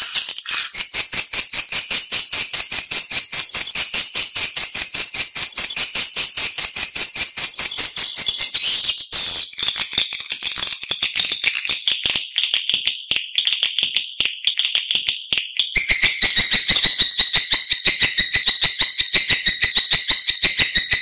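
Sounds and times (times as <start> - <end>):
tonal chirping: 0.0 - 3.0
rapid twittering chirps: 0.0 - 11.0, 15.8 - 21.0.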